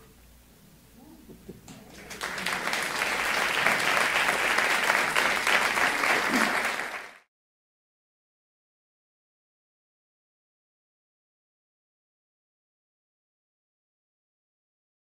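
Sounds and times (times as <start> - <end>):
audience applauding: 1.7 - 7.3.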